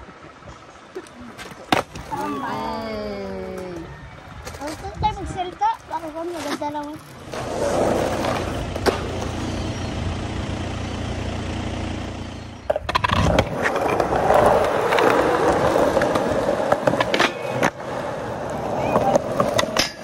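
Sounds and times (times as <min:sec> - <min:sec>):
skateboard wheels rolling on concrete: 0:00.0 - 0:20.0
skateboard clacks: 0:01.4 - 0:02.4, 0:06.0 - 0:09.4, 0:12.7 - 0:20.0.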